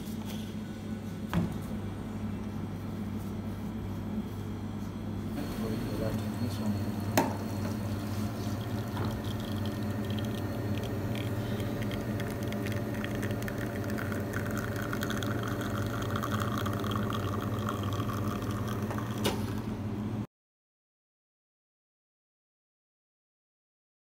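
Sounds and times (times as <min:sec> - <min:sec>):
espresso machine pump humming: 0:02.1 - 0:20.3.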